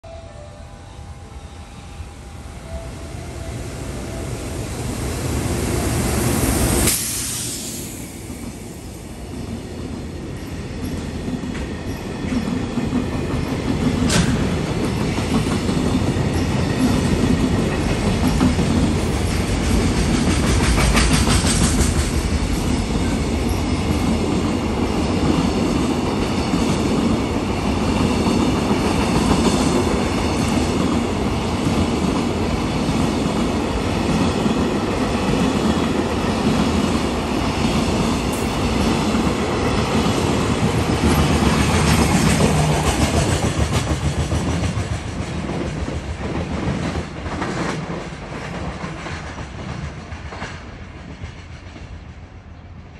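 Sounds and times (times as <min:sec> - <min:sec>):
train wheels clattering over rail joints: 0:12.3 - 0:16.1.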